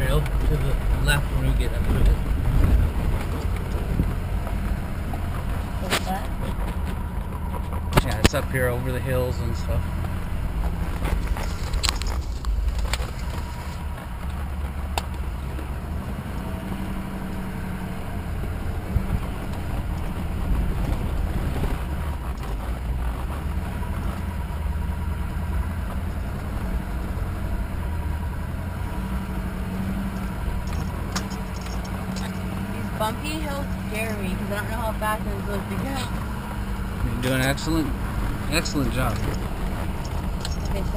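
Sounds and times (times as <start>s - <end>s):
truck engine and tyres rumbling: 0.0s - 40.9s
sharp rattles: 9.8s - 16.4s, 29.7s - 40.9s.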